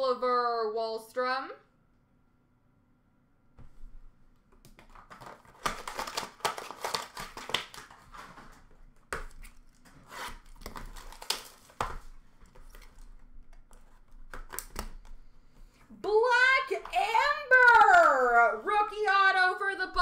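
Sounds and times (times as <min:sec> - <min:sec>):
wrapper and cardboard crinkling: 0:04.7 - 0:15.1.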